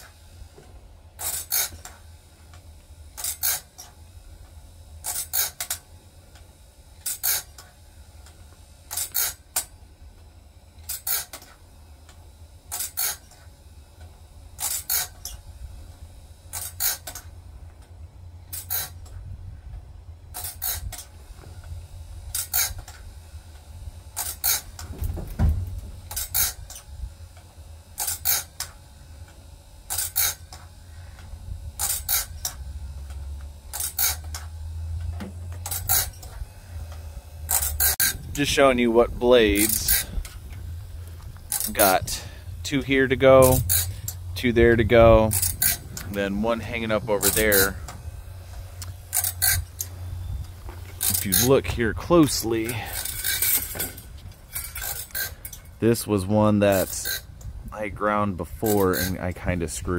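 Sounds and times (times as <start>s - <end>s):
motor hum: 0.0s - 59.9s
grinding wheel rasping on blade: 1.2s - 6.4s, 7.0s - 9.8s, 10.6s - 17.5s, 18.4s - 19.2s, 20.3s - 25.0s, 25.6s - 59.9s
low thump: 24.9s - 26.0s.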